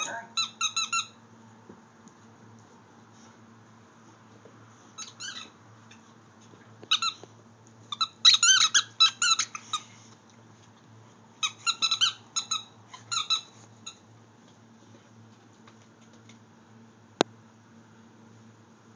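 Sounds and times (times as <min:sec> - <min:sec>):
squeaky toy squeaks: 0:00.0 - 0:01.2, 0:05.0 - 0:05.6, 0:07.9 - 0:09.8, 0:11.4 - 0:14.0.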